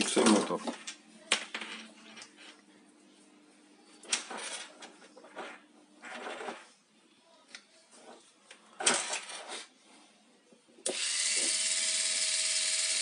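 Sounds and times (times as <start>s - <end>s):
electric motor whine: 10.9s - 13.0s.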